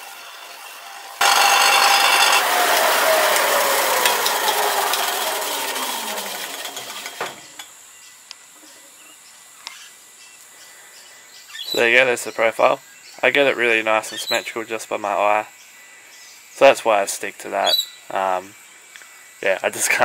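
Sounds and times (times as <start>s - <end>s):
sander whine coasting down: 0.0s - 7.7s
sander sanding wood: 1.2s - 7.6s.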